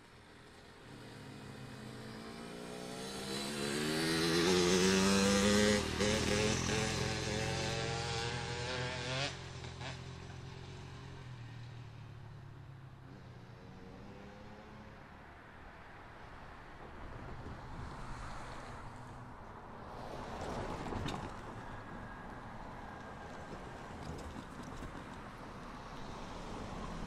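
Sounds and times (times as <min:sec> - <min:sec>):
motorcycle passing and shifting gears: 0:00.0 - 0:27.0.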